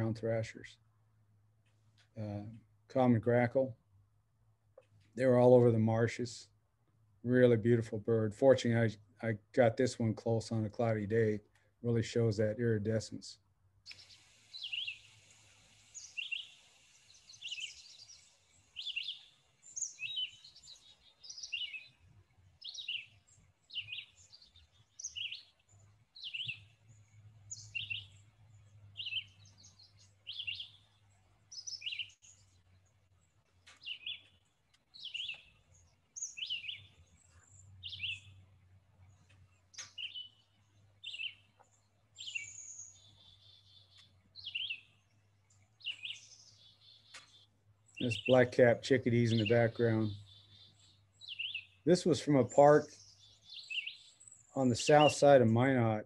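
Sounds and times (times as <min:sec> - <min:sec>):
bird singing whistled phrases: 0:13.9 - 0:15.1, 0:16.0 - 0:18.2, 0:29.0 - 0:30.8, 0:37.8 - 0:38.3, 0:42.2 - 0:44.8.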